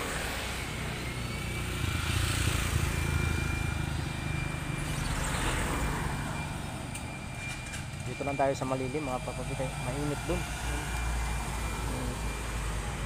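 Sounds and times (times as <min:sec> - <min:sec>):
motorcycle tricycle passing: 0:00.0 - 0:08.6
vehicles passing: 0:00.0 - 0:13.0.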